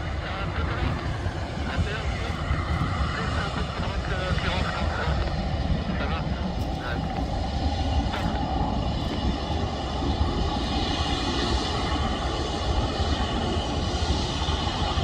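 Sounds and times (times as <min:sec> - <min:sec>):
jet engines at taxi power: 0:00.0 - 0:15.0.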